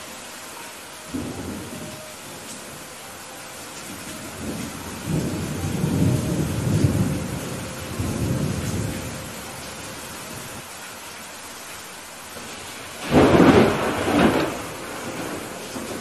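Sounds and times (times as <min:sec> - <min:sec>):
heavy rain falling: 0:00.0 - 0:16.0
thunder rolling: 0:03.9 - 0:09.4, 0:12.4 - 0:16.0.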